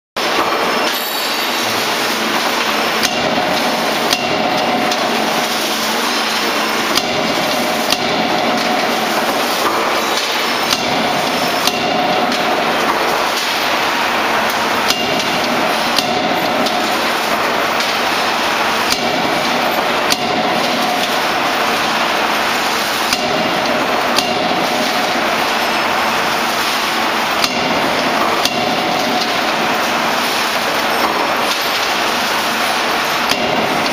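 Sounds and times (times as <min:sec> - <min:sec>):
loud machine noise: 0:00.2 - 0:33.9
forging hammer striking hot steel: 0:02.6 - 0:13.8, 0:14.4 - 0:22.2, 0:23.1 - 0:25.5, 0:26.6 - 0:30.0, 0:33.2 - 0:33.9.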